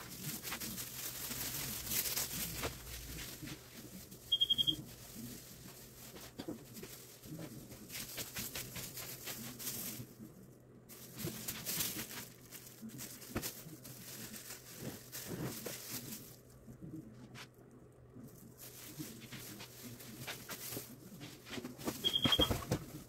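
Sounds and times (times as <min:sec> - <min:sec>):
handling noise rustling and clicking: 0:18.4 - 0:23.0.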